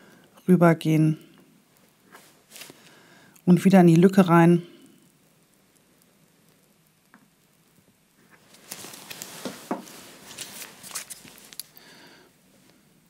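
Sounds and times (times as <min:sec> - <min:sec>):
plastic piping bag crinkling: 0:08.2 - 0:12.3.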